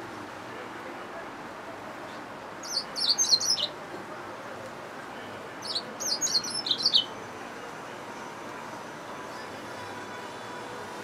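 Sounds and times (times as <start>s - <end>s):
bird chirping rapidly: 2.6s - 3.7s, 5.6s - 7.1s.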